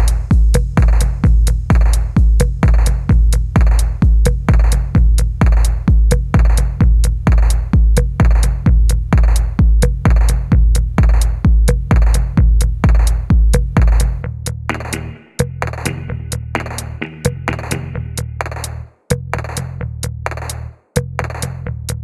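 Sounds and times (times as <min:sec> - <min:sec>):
heavy kick drum: 0:00.0 - 0:19.8
electronic clap: 0:14.7 - 0:18.0.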